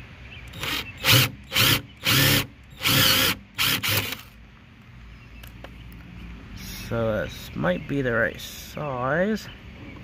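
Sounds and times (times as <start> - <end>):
cordless drill boring plastic: 0.5 - 4.3.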